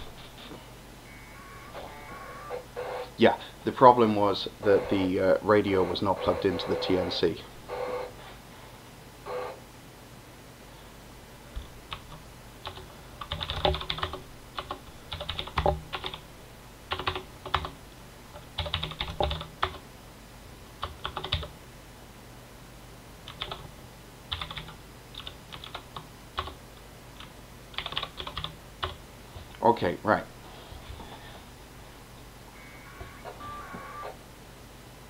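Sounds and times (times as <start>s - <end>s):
typing on a computer keyboard: 11.9s - 16.2s, 16.9s - 17.8s, 18.6s - 19.8s, 20.8s - 21.5s, 23.3s - 23.6s, 24.3s - 26.6s, 27.2s - 29.0s.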